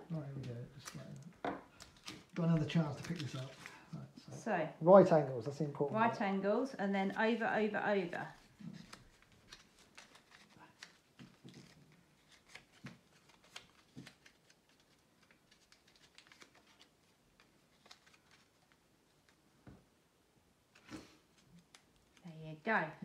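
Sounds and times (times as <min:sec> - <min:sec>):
paper crinkling and clicking: 0:00.4 - 0:03.8, 0:08.3 - 0:19.4, 0:20.7 - 0:22.3.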